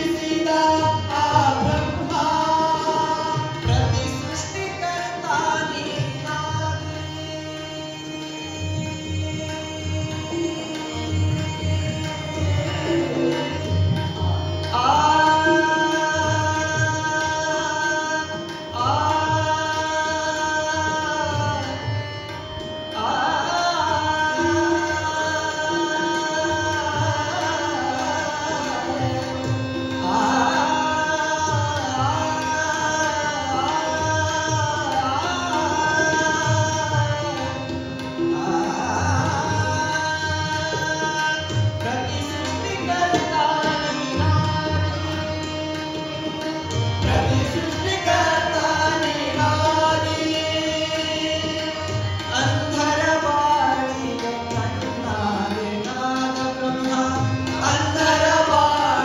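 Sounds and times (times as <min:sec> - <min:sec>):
man singing: 0:00.0 - 0:22.0, 0:22.9 - 0:59.0
harmonium: 0:00.0 - 0:59.0
tabla rhythm: 0:00.0 - 0:59.0.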